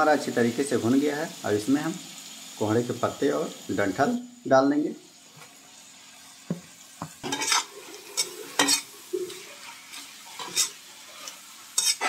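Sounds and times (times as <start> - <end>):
faint sizzle: 0.0 - 12.0
spatula scraping metal pan: 7.2 - 12.0.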